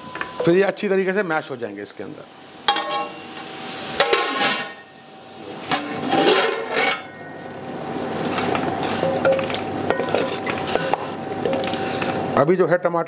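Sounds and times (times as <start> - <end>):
food sizzling in fat: 1.9 - 6.4, 7.2 - 12.4
metal lid clanking on pot: 2.7 - 3.2
clatter and scraping: 5.7 - 7.1.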